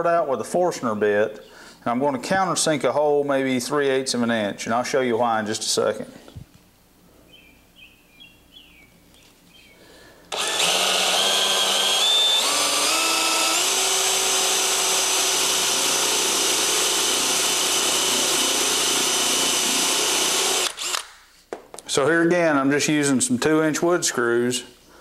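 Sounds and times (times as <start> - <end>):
power drill boring into wood: 10.3 - 21.1.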